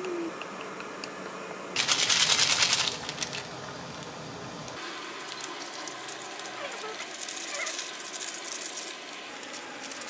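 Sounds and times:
food packaging crinkling: 1.8 - 3.6, 5.3 - 10.0.

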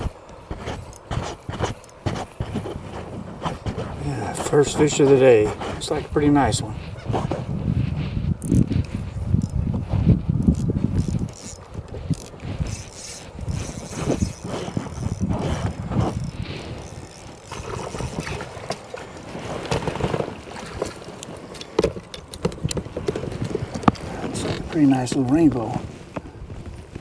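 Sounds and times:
fishing reel clicking and whirring: 0.0 - 2.8, 8.0 - 19.3.

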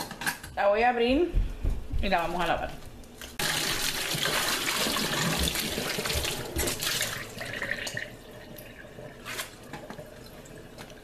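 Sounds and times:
tap water splashing into sink: 3.4 - 8.7.

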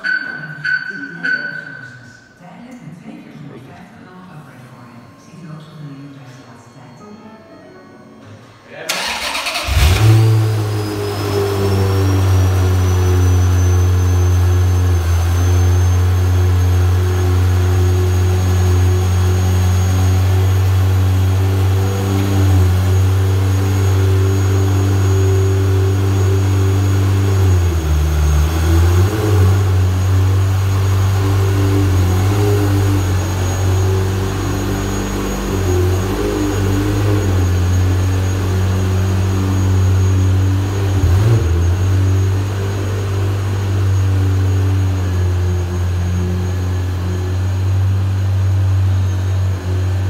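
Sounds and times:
car engine starting and idling: 8.9 - 50.0
faint high whine: 10.6 - 50.0.

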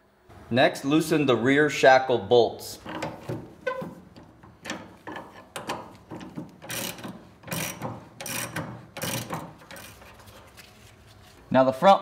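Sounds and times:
socket ratchet clicking: 2.9 - 10.1.

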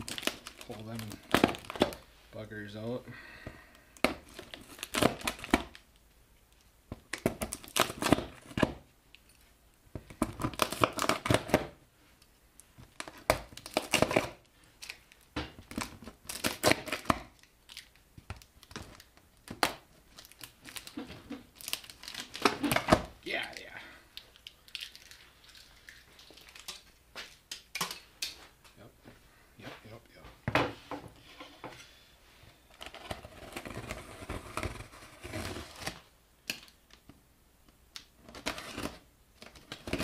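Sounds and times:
packing tape tearing: 0.0 - 2.0, 4.2 - 5.8, 7.1 - 8.7, 10.2 - 11.7, 13.0 - 23.1.

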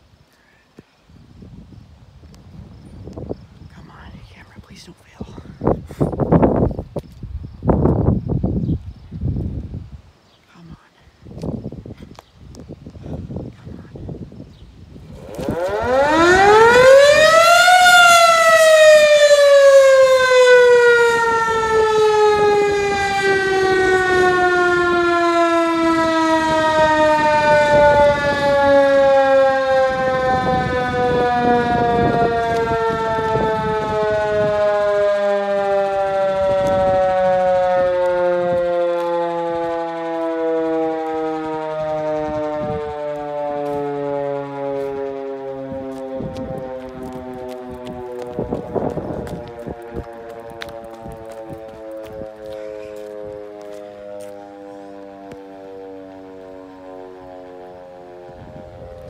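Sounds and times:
warning siren wailing: 15.0 - 59.0.

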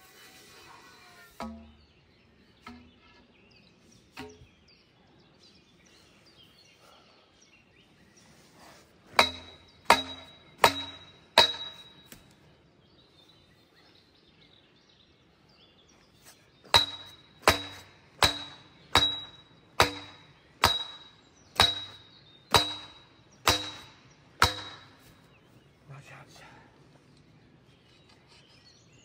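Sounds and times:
sledgehammer striking metal pole: 1.4 - 1.9, 4.1 - 4.5, 9.1 - 12.2, 16.7 - 25.2.

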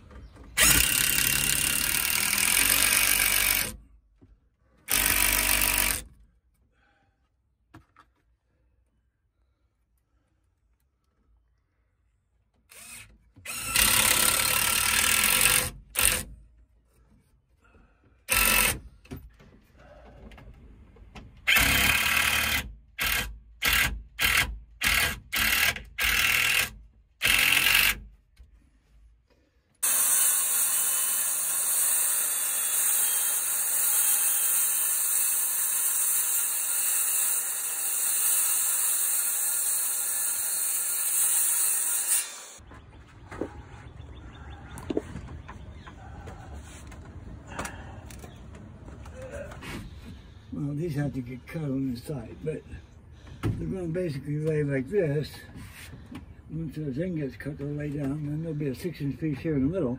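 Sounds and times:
cordless drill driving screws: 0.6 - 3.8, 4.9 - 6.0, 12.7 - 16.3, 18.3 - 18.8, 21.5 - 28.0
circular saw cutting plywood: 29.8 - 42.7.

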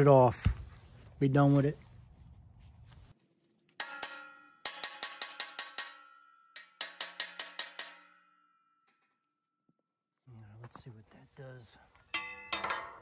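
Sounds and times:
hammer striking steel: 3.8 - 9.4, 12.1 - 13.0.

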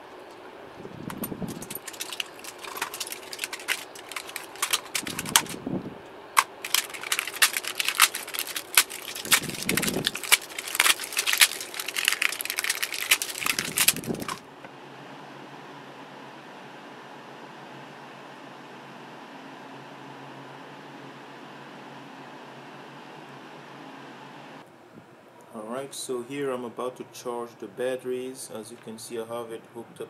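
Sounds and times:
plastic wrap crackling and tearing: 1.1 - 5.6, 6.4 - 14.4.

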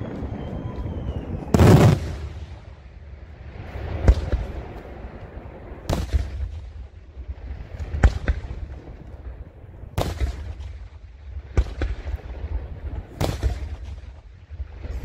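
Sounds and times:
fireworks bangs with echo: 0.0 - 2.8, 3.8 - 5.1, 5.8 - 9.0, 9.9 - 14.9.

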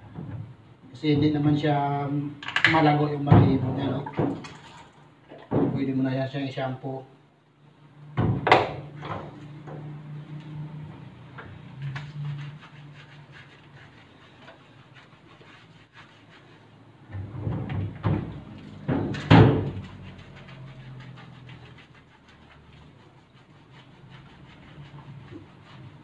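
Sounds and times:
knocks and rustling: 0.0 - 0.6, 17.0 - 20.9
hands rubbing wet fur: 9.3 - 17.0, 18.4 - 26.0.

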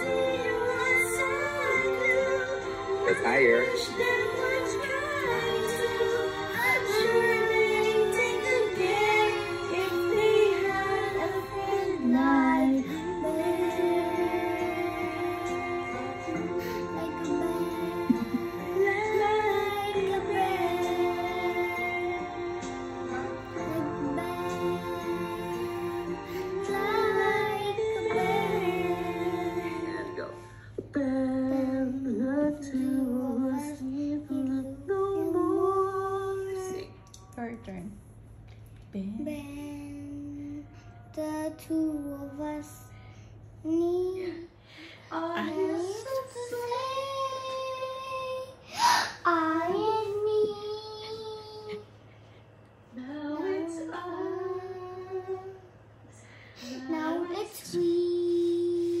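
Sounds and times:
girl singing long held notes: 0.0 - 37.2, 39.0 - 51.9, 52.9 - 59.0.

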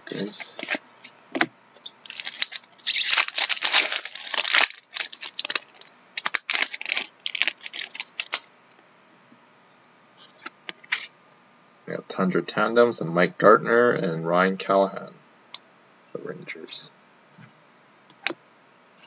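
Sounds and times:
card pack crinkling and rustling: 0.1 - 0.8, 2.0 - 8.5.

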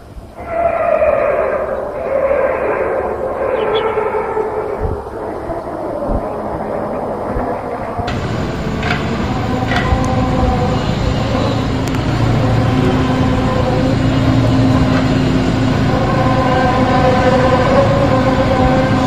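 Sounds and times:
low droning horn-like hum: 0.0 - 19.0
low rumble: 0.2 - 19.0.

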